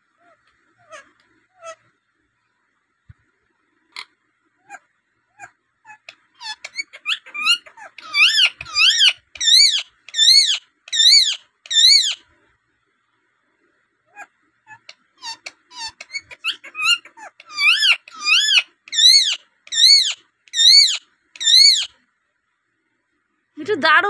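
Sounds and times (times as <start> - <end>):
parakeet chirps and calls: 4.0 - 12.2, 14.1 - 22.0.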